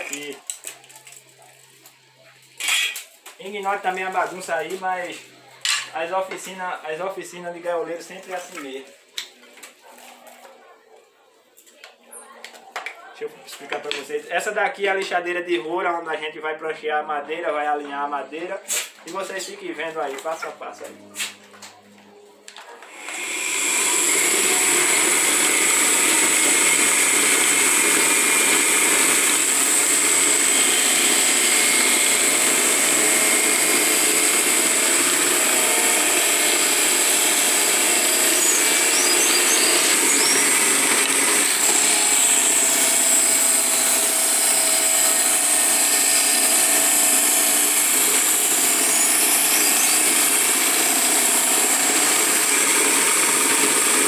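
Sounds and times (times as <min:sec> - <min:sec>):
drum sander whining: 0:22.9 - 0:54.0.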